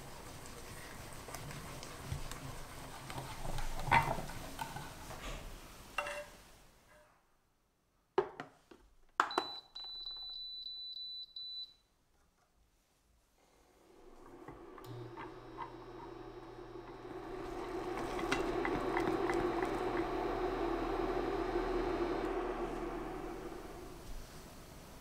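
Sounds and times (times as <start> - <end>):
whisk scraping in a saucepan: 0.0 - 4.7.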